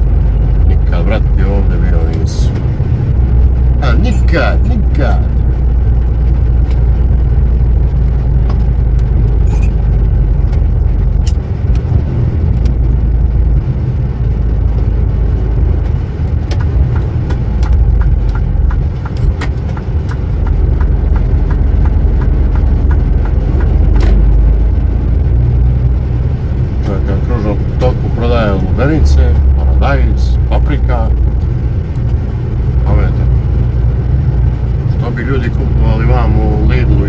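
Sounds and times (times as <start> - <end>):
light regular ticking: 0.0 - 37.0
road noise: 0.0 - 37.0
truck diesel engine rumble: 0.0 - 37.0
rattles: 2.0 - 12.9.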